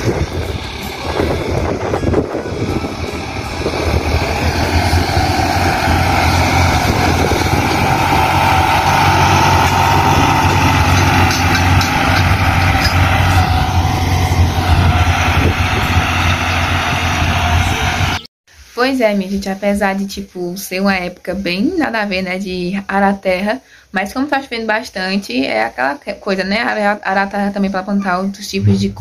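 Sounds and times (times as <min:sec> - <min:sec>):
tractor engine under load: 0:00.0 - 0:18.3.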